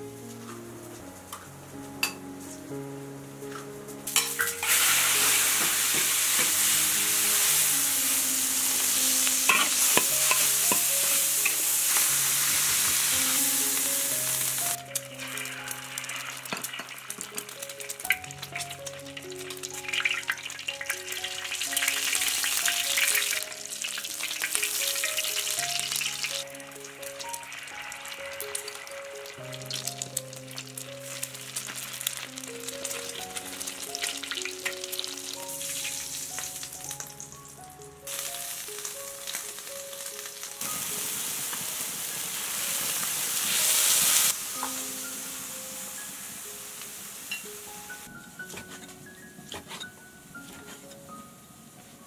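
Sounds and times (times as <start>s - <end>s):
food sizzling in wok: 0.0s - 51.8s
background music: 0.0s - 52.0s
spatula scraping wok: 4.0s - 7.9s, 8.6s - 14.6s, 48.4s - 51.1s
egg frying in oil: 4.1s - 48.1s.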